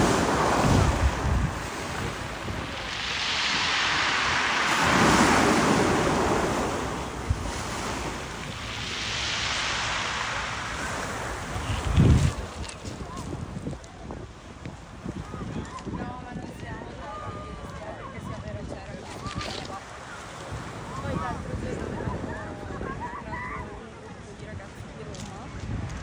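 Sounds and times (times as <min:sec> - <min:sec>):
waves breaking on pebbles: 0:00.0 - 0:14.2.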